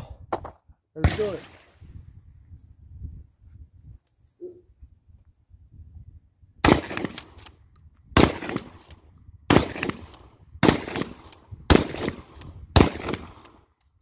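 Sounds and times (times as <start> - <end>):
shotgun shots: 1.0 - 1.7, 6.6 - 7.5, 8.2 - 8.9, 9.5 - 13.6.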